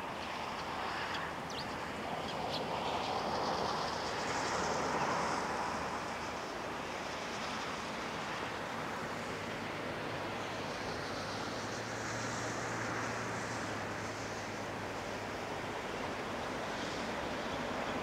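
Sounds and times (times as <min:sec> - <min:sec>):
rushing outdoor background noise: 0:00.0 - 0:18.0.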